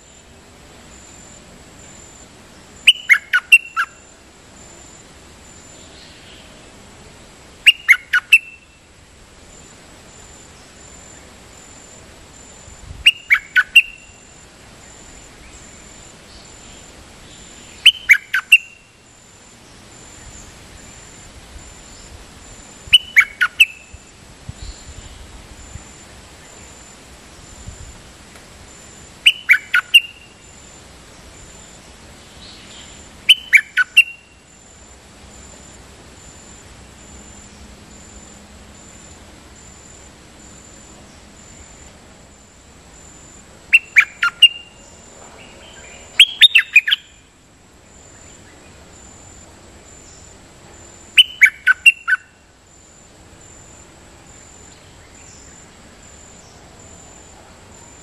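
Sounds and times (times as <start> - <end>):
bird whistling falling notes: 46.2 - 47.1.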